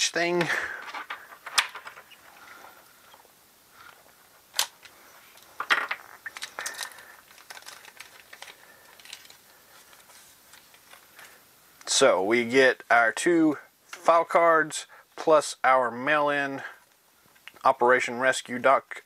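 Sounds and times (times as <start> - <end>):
plastic bag crinkling: 5.3 - 11.3.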